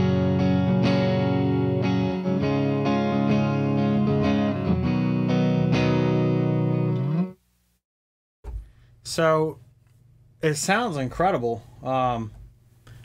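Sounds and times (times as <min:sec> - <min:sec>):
electric guitar chords: 0:00.0 - 0:07.4.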